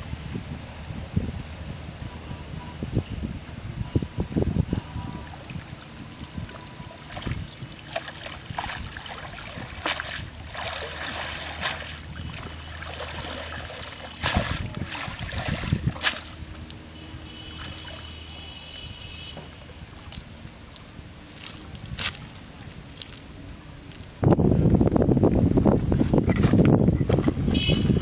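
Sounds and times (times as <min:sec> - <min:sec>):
water splashing and dripping: 0:04.6 - 0:18.4, 0:19.6 - 0:23.3.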